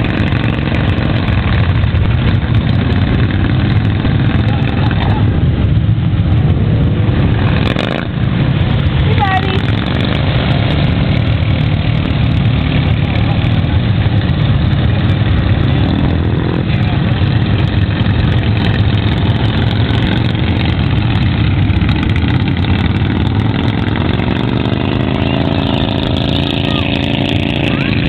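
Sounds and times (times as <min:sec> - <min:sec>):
lawn mower engine running: 0:07.3 - 0:28.0.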